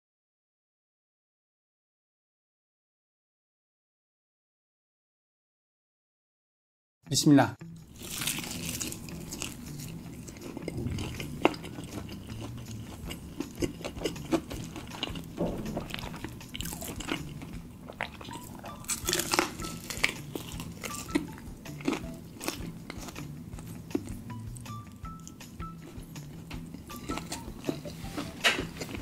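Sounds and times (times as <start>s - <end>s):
crunchy fried chicken chewing: 7.8s - 29.0s.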